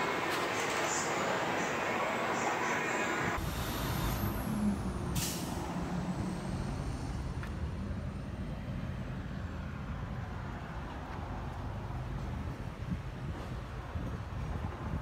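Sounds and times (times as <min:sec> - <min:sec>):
loud diesel engine: 0:00.0 - 0:10.1
hiss of released air: 0:05.2 - 0:05.6.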